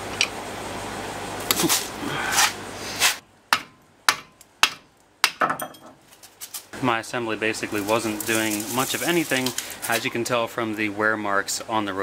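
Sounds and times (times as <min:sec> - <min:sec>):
wood block knocking on metal: 0:03.5 - 0:06.0
steady hiss: 0:06.6 - 0:11.5.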